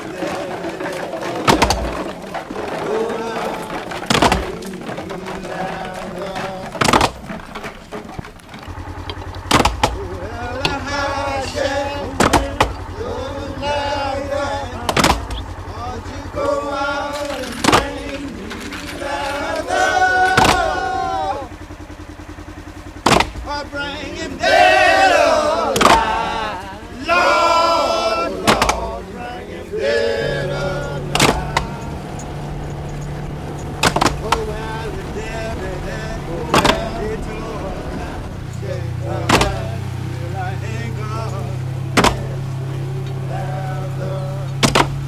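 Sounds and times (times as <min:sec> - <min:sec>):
man singing: 0:00.0 - 0:07.6, 0:09.9 - 0:21.6, 0:23.4 - 0:32.4, 0:34.1 - 0:45.0
sharp knocks: 0:00.0 - 0:15.6, 0:16.3 - 0:21.0, 0:22.9 - 0:23.5, 0:25.7 - 0:26.1, 0:28.4 - 0:29.1, 0:29.8 - 0:40.1, 0:40.9 - 0:43.3, 0:44.5 - 0:45.0
vehicle engine idling: 0:00.0 - 0:45.0.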